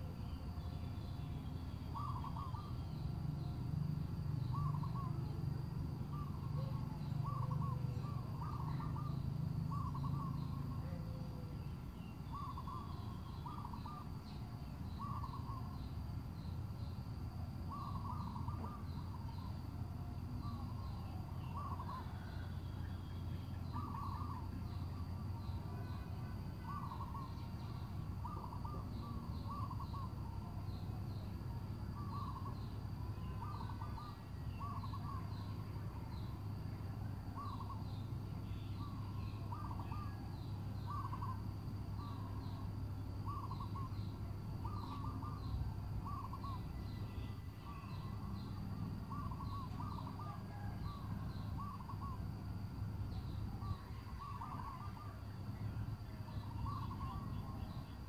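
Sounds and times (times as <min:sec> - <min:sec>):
steady low hum: 0:00.0 - 0:58.0
bird hooting: 0:01.6 - 0:03.6, 0:04.4 - 0:05.4, 0:06.0 - 0:16.0, 0:17.6 - 0:58.0
faint high chirps: 0:17.6 - 0:58.0.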